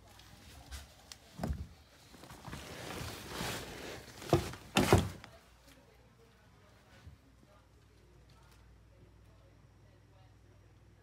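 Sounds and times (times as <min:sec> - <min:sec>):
rustling of handling things: 0:00.0 - 0:08.8.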